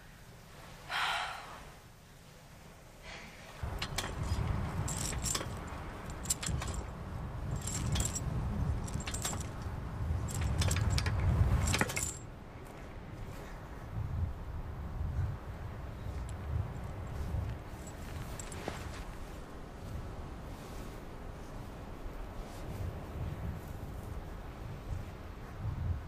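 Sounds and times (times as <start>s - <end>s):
swing chains clinking: 3.6s - 12.3s, 17.7s - 19.0s
wind rumble on microphone: 3.6s - 26.0s.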